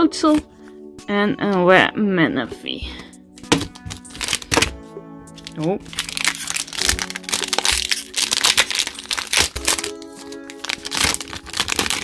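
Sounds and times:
background music: 0.0 - 12.0
foil wrapper crinkling: 3.4 - 4.8, 5.4 - 12.0.

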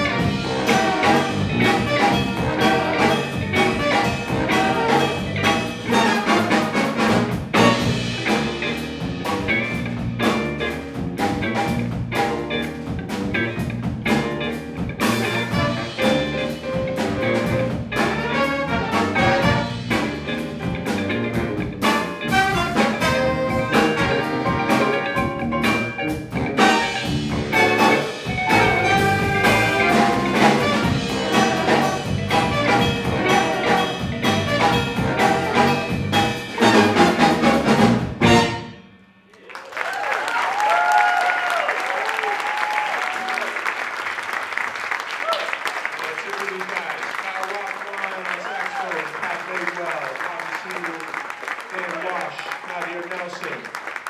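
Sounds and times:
jazz ensemble playing: 0.0 - 39.4.

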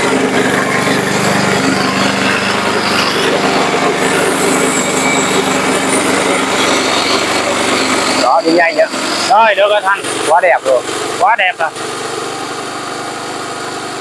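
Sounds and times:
mower engine running: 0.0 - 14.0.

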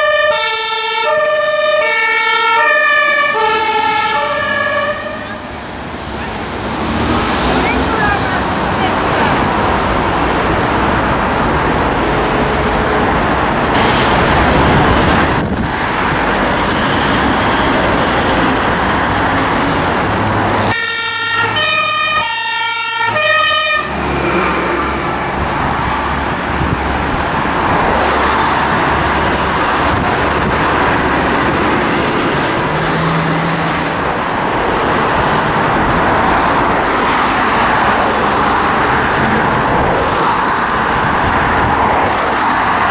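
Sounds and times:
fire engine two-tone siren: 0.0 - 5.6, 20.7 - 24.0
road traffic noise: 0.0 - 42.9.

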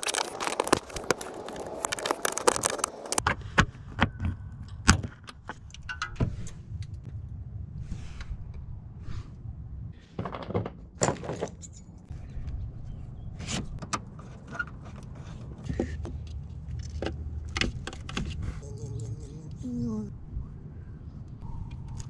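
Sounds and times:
steady low rumble: 0.8 - 10.2, 18.4 - 22.0
engine parts clattering: 10.1 - 12.1.

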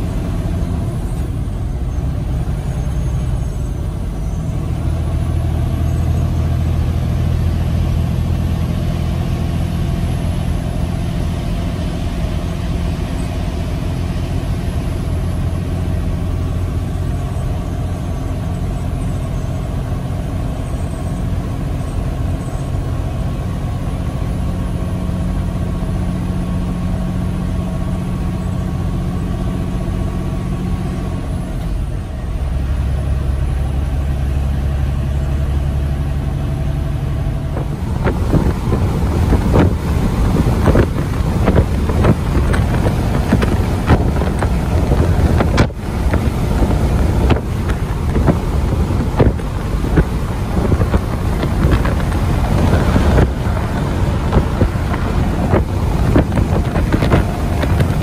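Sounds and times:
truck engine drone: 0.0 - 58.0
tyre and road noise: 0.0 - 58.0.

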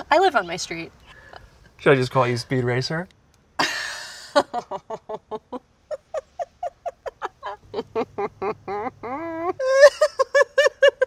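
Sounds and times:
woman giggling: 3.6 - 11.0.

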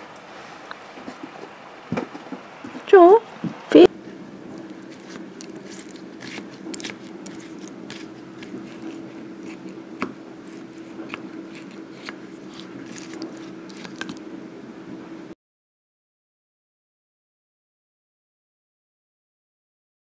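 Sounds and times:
steady low hum: 0.0 - 15.4
spoon scraping a bowl: 4.6 - 14.2.

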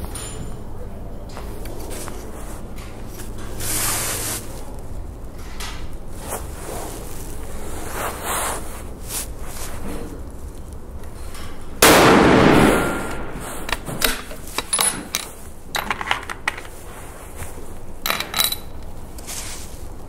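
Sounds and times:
rifle shot: 11.8 - 13.4.

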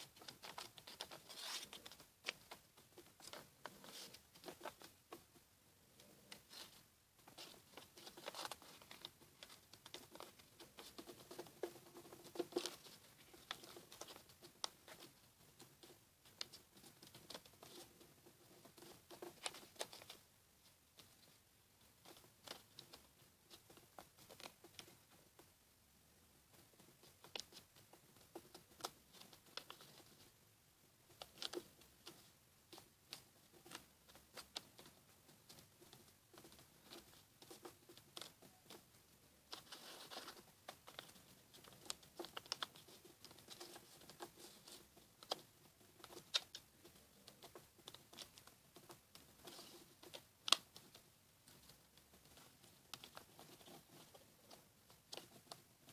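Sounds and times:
paper rustling and crinkling: 0.0 - 4.9, 6.4 - 14.3
soft irregular ticks: 0.0 - 55.9.

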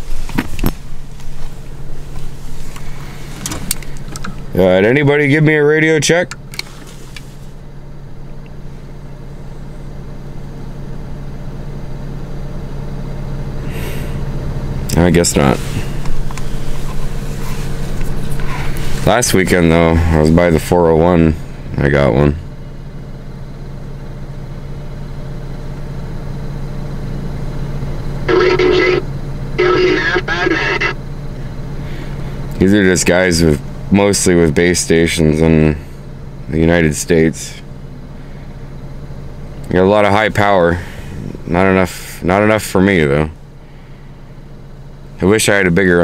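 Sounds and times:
radio low hum: 0.0 - 6.4, 14.8 - 22.4, 27.5 - 35.8, 39.4 - 43.9
car engine idling: 0.0 - 46.0
distant voice through radio speaker: 28.3 - 31.0.

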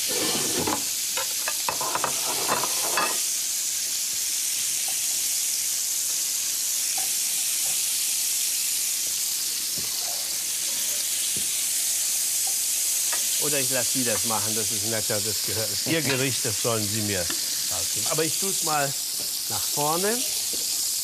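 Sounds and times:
utensils scraping a pan: 0.0 - 3.2
meat sizzling in a pan: 0.0 - 21.0.

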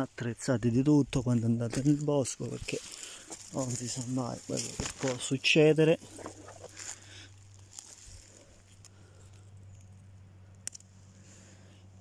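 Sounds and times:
rustling of dry leaves: 0.0 - 11.8
plant stem snapping: 10.5 - 10.9.

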